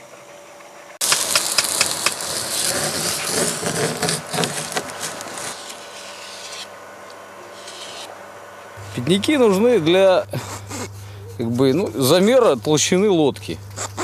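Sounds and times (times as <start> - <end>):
adze striking wood: 1.0 - 6.7
wood chipping and scraping: 1.0 - 6.8, 7.4 - 8.1.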